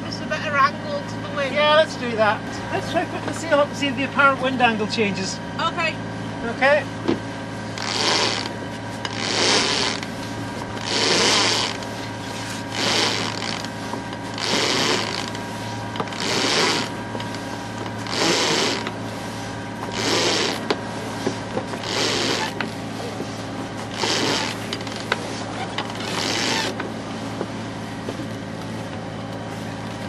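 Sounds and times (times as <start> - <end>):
boat engine humming: 0.0 - 30.0
water splashing along hull: 7.6 - 30.0.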